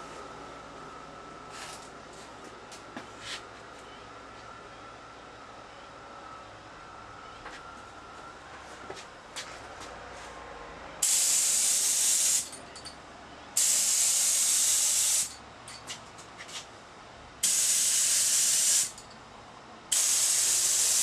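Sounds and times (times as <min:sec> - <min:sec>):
spray gun air hiss: 0:11.0 - 0:12.5, 0:13.6 - 0:15.3, 0:17.4 - 0:19.0, 0:19.9 - 0:21.0.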